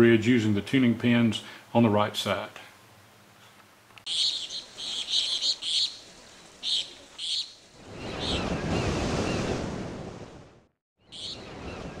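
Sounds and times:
birds chirping: 0:04.0 - 0:09.6, 0:11.0 - 0:12.0
ocean wave washing in: 0:07.6 - 0:10.7.

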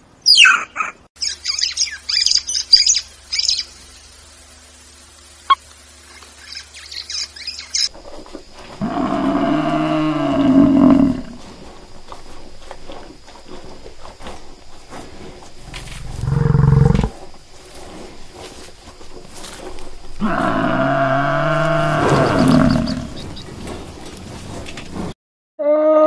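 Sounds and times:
water buffalo mooing: 0:08.7 - 0:11.5, 0:15.6 - 0:17.4, 0:20.1 - 0:23.4, 0:25.6 - 0:26.0
water buffalo bellowing: 0:08.7 - 0:12.1, 0:14.9 - 0:17.9, 0:19.6 - 0:24.0, 0:25.6 - 0:26.0.

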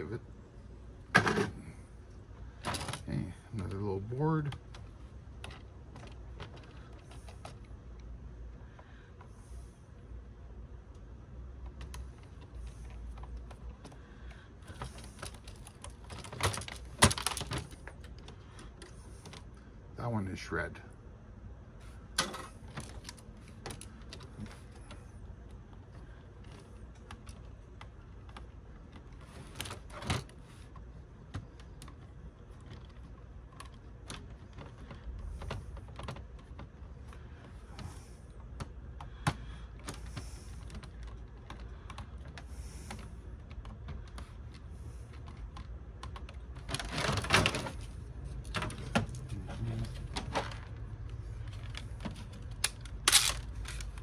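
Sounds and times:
small parts clicking and clattering: 0:11.7 - 0:19.6, 0:22.1 - 0:54.0.

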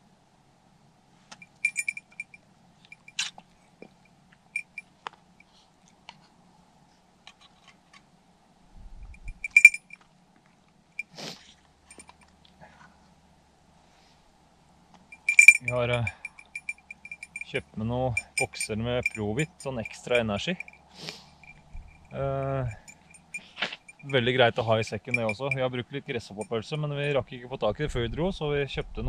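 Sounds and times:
metallic clinking and jingling: 0:01.3 - 0:03.4, 0:04.6 - 0:04.9, 0:09.1 - 0:10.0, 0:11.9 - 0:12.3, 0:15.1 - 0:27.2.

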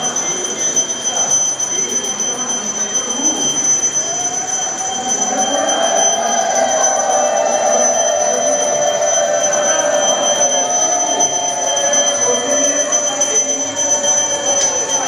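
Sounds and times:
temple bells ringing: 0:04.3 - 0:15.0.

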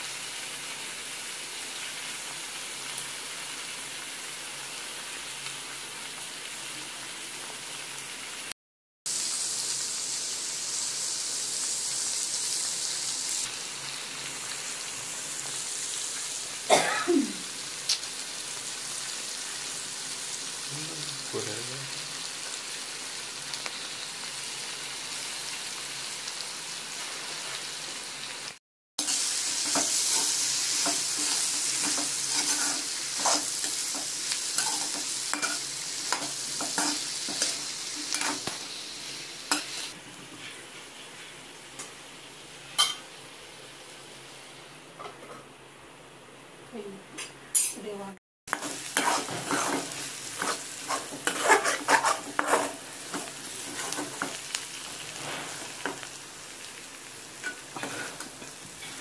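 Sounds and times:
vegetables sizzling in a pan: 0:00.0 - 0:08.5, 0:09.1 - 0:59.0
metal spoon scraping a pan: 0:29.0 - 0:38.5, 0:39.5 - 0:40.6, 0:48.5 - 0:56.1, 0:57.4 - 0:59.0.

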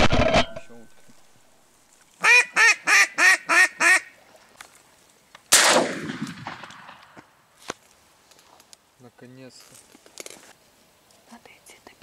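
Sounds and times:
duck call quacks: 0:02.2 - 0:04.1
shotgun blast echoing: 0:05.5 - 0:07.2.

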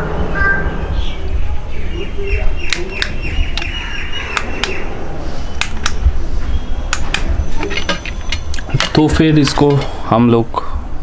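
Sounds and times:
low rumble: 0:00.0 - 0:08.7
sharp plastic clicks: 0:02.6 - 0:04.8, 0:05.6 - 0:06.0, 0:06.9 - 0:09.9.

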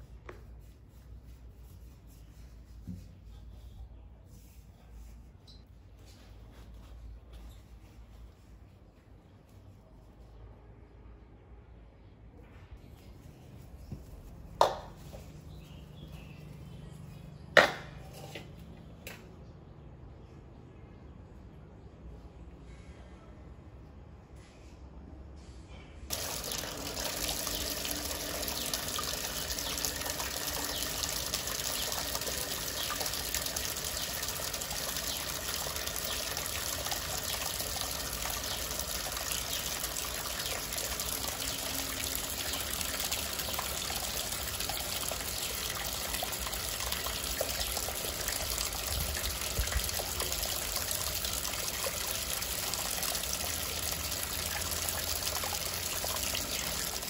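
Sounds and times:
water running from a tap: 0:26.1 - 0:57.0.

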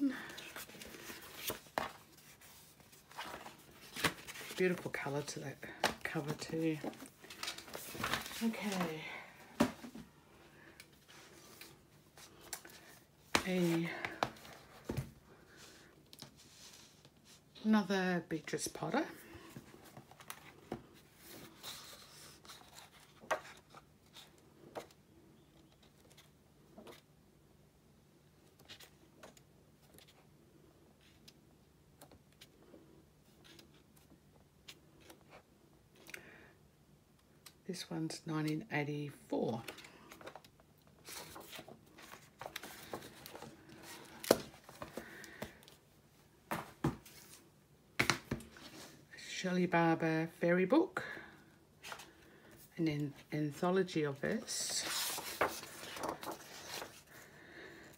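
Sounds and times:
paper rustling: 0:00.2 - 0:05.2, 0:05.8 - 0:09.0, 0:41.0 - 0:45.8, 0:54.4 - 0:57.2
book pages turning: 0:00.2 - 0:09.0, 0:19.6 - 0:25.0, 0:39.6 - 0:45.8, 0:54.4 - 0:57.2.

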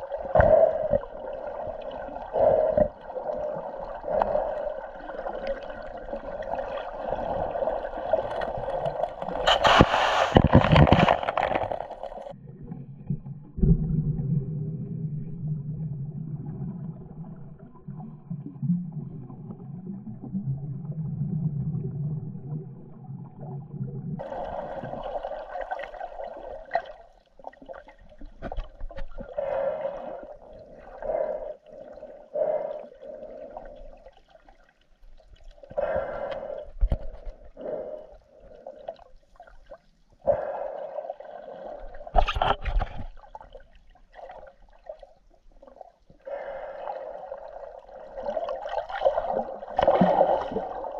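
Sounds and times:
low underwater rumble: 0:00.0 - 0:39.8
water gurgling: 0:00.0 - 0:50.9.

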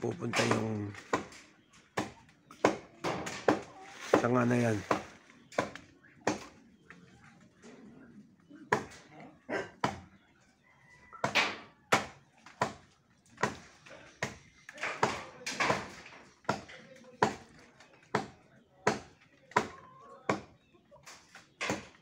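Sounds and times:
chopping strikes into branch: 0:00.2 - 0:01.4.

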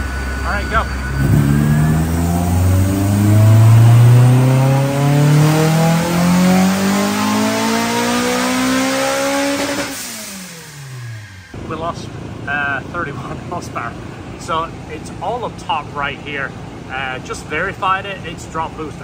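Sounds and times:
car engine revving at full throttle: 0:00.0 - 0:11.7.

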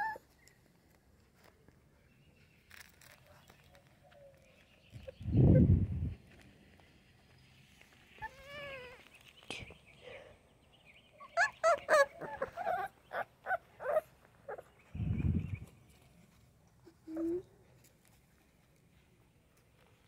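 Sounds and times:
puppy yipping: 0:00.0 - 0:00.3, 0:08.2 - 0:09.0, 0:11.2 - 0:14.7
puppy whining: 0:00.0 - 0:00.5, 0:08.2 - 0:09.1, 0:11.2 - 0:14.9, 0:16.8 - 0:17.6
low muffled rumble: 0:15.0 - 0:15.8.

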